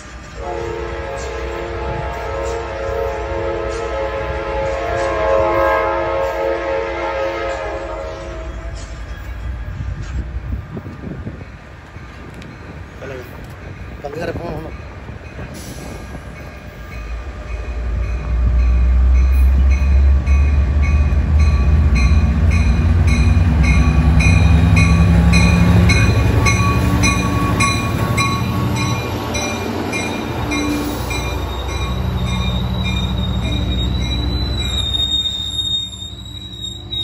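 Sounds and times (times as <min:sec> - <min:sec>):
train rumbling past: 0:00.0 - 0:37.0
bell ringing: 0:18.7 - 0:37.0
wheel squeal: 0:31.5 - 0:37.0.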